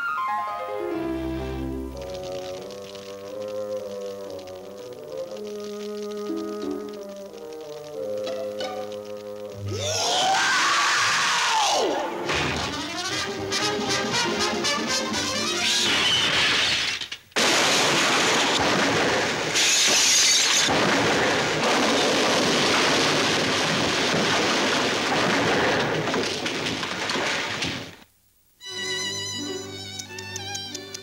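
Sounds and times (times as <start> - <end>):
cartoon music: 7.9 - 10.1, 12.1 - 15.9.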